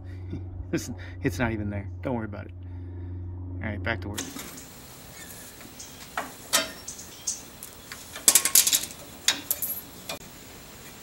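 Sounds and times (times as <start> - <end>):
metal tools clinking: 5.2 - 10.2.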